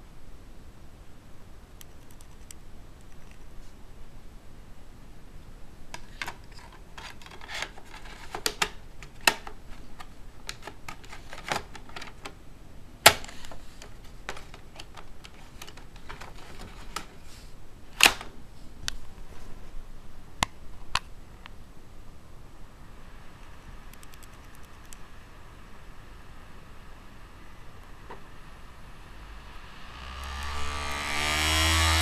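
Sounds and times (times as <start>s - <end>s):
sharp plastic snaps: 7.0s - 12.4s.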